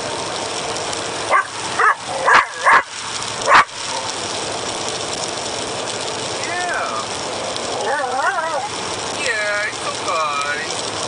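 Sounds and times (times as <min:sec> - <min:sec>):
truck cab running noise: 0:00.0 - 0:11.0
dog yipping and whining: 0:01.3 - 0:03.7, 0:07.8 - 0:08.7.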